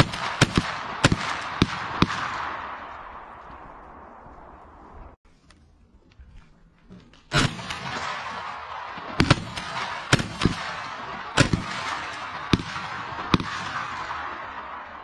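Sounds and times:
rapid gunshots: 0.0s - 2.8s, 7.3s - 15.0s.

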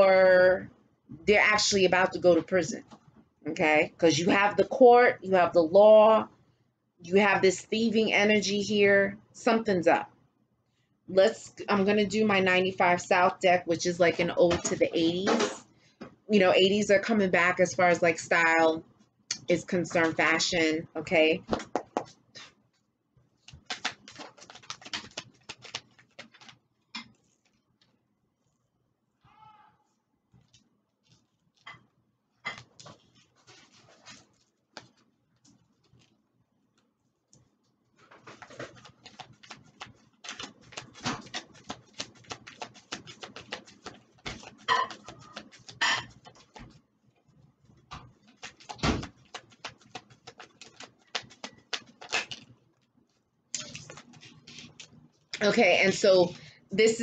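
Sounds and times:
cards shuffling clicks and taps: 21.5s - 22.5s, 23.4s - 28.0s, 32.5s - 36.1s, 36.8s - 46.8s, 47.8s - 52.9s, 53.6s - 55.3s.

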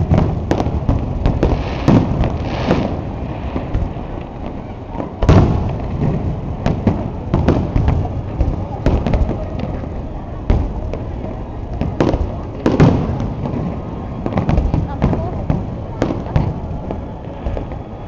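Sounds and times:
fireworks shells bursting: 0.0s - 4.6s
loud firework bang: 0.0s - 16.6s
rumble of booms: 0.0s - 17.9s.

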